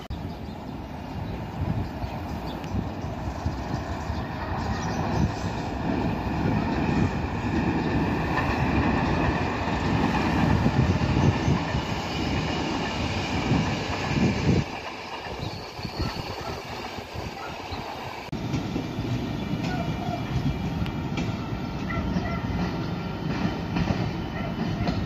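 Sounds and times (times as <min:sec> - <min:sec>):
train wheels rumbling on rails: 0:00.0 - 0:25.0
high wheel squeal: 0:15.3 - 0:18.2.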